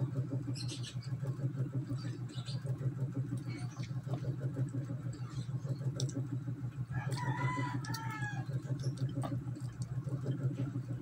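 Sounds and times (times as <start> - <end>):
low hum: 0.0 - 11.0
rooster crowing: 6.9 - 8.7.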